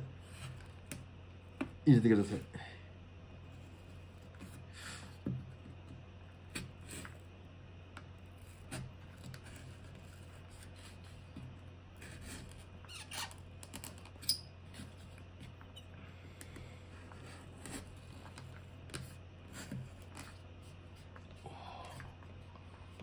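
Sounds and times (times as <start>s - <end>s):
knife scraping cardboard tube: 8.3s - 11.4s, 12.0s - 13.3s.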